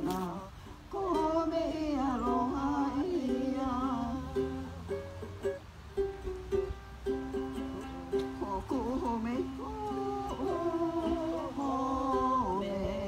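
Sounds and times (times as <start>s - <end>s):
acoustic guitar: 0.0s - 13.0s
ukulele: 0.0s - 13.0s
person singing wavering line: 7.8s - 13.0s.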